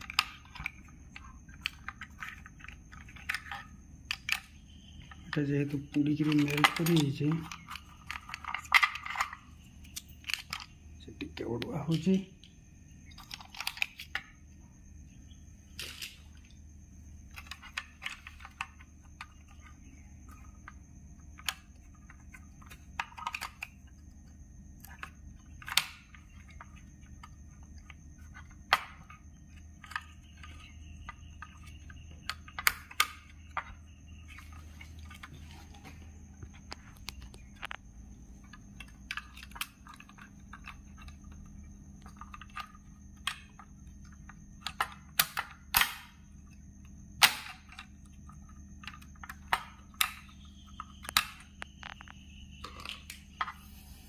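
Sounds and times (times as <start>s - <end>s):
plastic and metal parts clicking: 0.0s - 14.3s, 21.4s - 24.0s, 24.8s - 29.2s, 38.4s - 41.2s, 48.8s - 53.6s.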